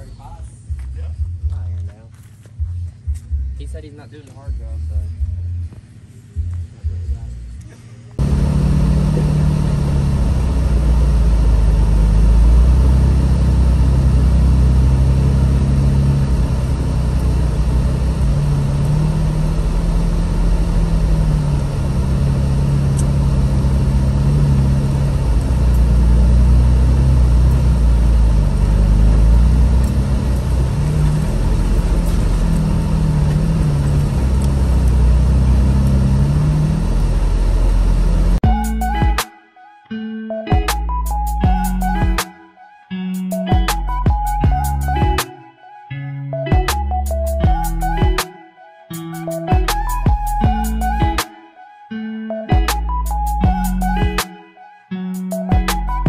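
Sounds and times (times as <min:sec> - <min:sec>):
car engine and exhaust: 0:00.0 - 0:39.0.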